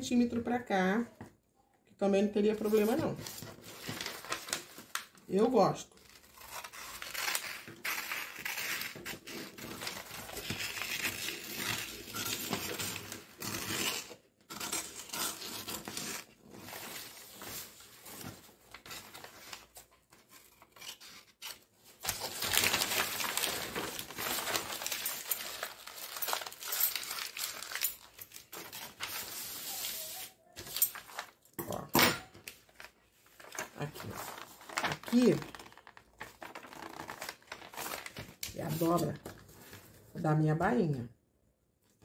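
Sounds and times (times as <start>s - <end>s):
paper rustling and crinkling: 2.6s - 5.3s, 6.0s - 31.5s, 32.3s - 40.1s
scissors cutting paper: 6.0s - 17.2s, 20.2s - 28.9s.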